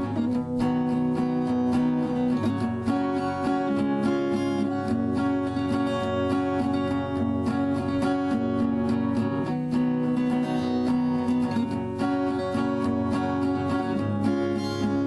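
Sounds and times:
strummed acoustic guitar: 0.0 - 15.0.

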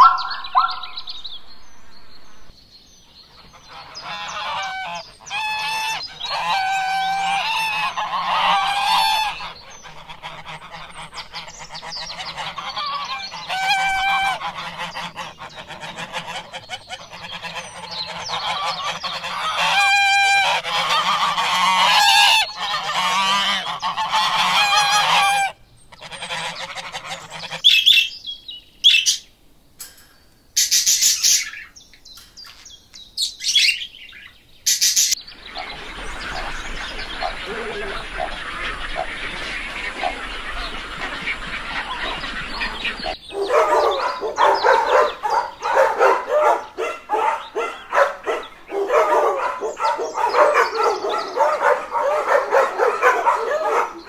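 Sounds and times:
ducks quacking: 0.0 - 2.5, 3.2 - 28.0, 34.7 - 54.0
parrots screeching: 3.8 - 11.1, 12.1 - 28.1.

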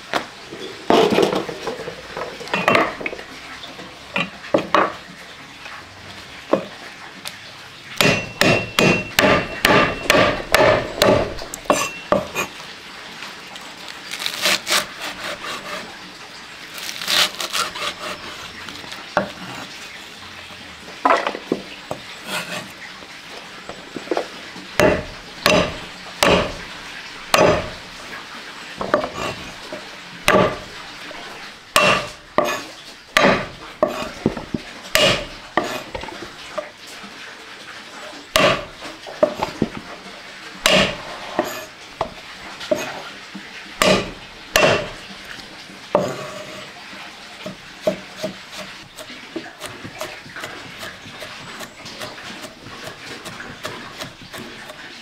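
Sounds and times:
knife chopping on wooden board: 8.0 - 12.5, 24.8 - 26.6, 27.3 - 27.7, 30.3 - 30.6, 31.8 - 32.6, 33.2 - 35.8, 38.4 - 39.6, 40.6 - 41.6, 43.8 - 45.0.

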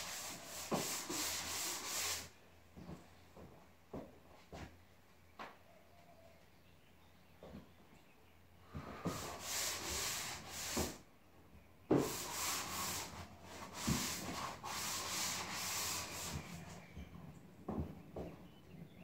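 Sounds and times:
drywall sanding by hand: 0.0 - 2.3, 8.9 - 11.0, 11.9 - 16.8.

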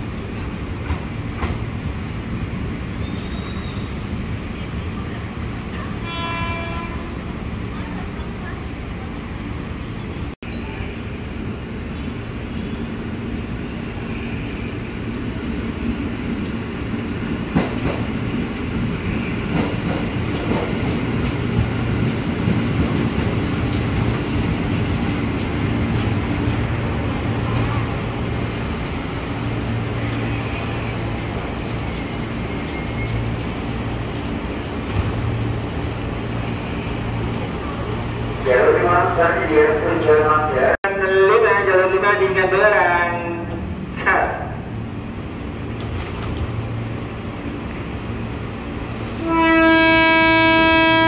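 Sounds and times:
high-pitched brake squeals: 3.0 - 4.0, 24.6 - 33.3.

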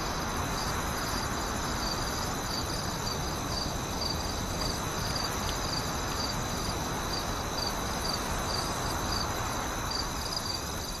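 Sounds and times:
background hiss: 0.0 - 11.0
crickets chirping: 0.0 - 11.0.

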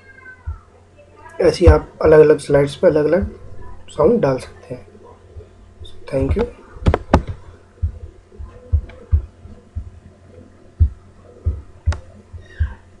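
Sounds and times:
faint steady hum: 0.0 - 13.0
dull low thumps: 5.3 - 10.0, 10.8 - 12.9.

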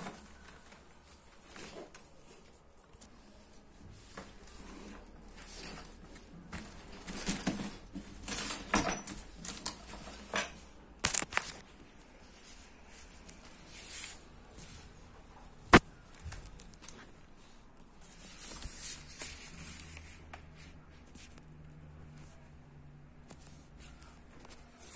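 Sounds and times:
backpack fabric rustling and scraping: 0.0 - 8.8.

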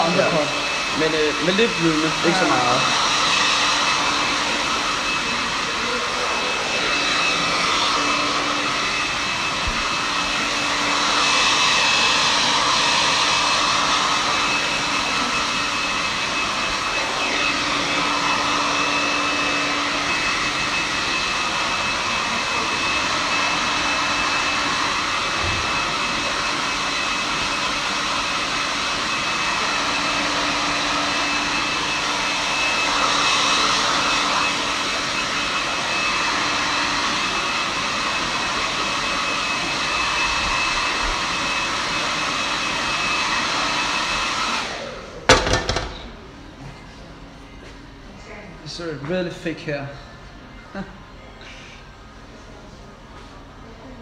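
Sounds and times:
hair dryer blowing: 0.0 - 48.1.

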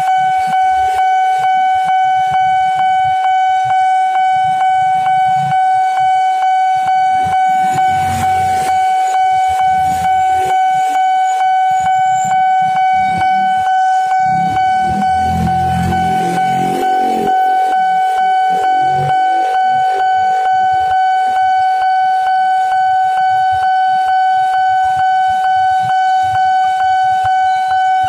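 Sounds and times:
level crossing bell pulsing: 7.0 - 20.7
motorbike engines passing: 14.4 - 17.3.

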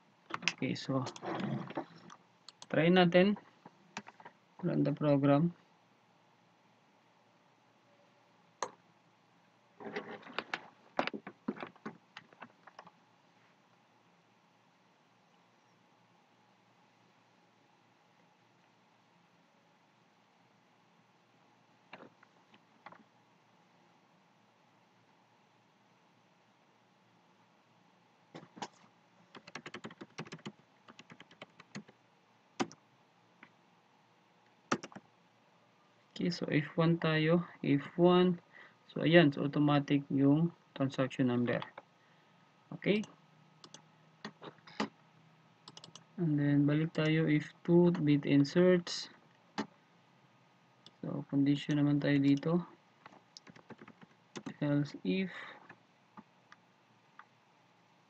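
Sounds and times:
keyboard and mouse clicks: 0.3 - 2.8, 4.0 - 4.3, 9.8 - 13.0, 28.4 - 32.0, 32.6 - 32.8, 34.7 - 35.0, 43.0 - 44.9, 45.6 - 46.1, 52.3 - 54.6
typing on computer keyboard: 28.4 - 31.9, 34.7 - 35.0, 45.7 - 46.1, 53.4 - 54.6
loud keyboard click: 34.7 - 35.0.

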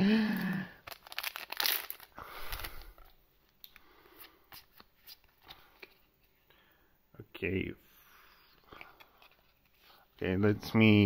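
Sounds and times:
wrapper tearing and crinkling: 0.8 - 3.0
cards clicking and rustling: 0.8 - 3.1.

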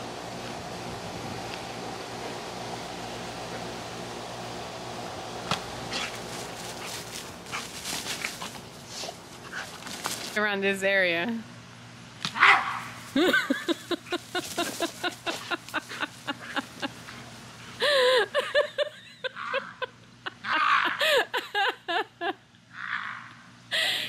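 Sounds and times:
dog grunting and yipping: 5.9 - 9.9.

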